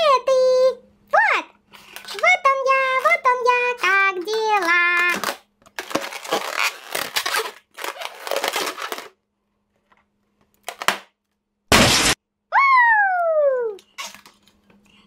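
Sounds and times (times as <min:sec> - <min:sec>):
rubber balloon squeaking: 0:05.9 - 0:09.1
balloon popping: 0:11.7 - 0:12.2.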